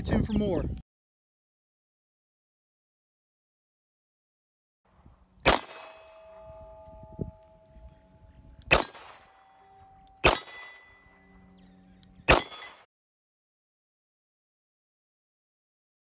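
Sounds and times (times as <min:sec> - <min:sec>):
steel plate target ringing: 0:05.4 - 0:11.6, 0:12.3 - 0:12.9.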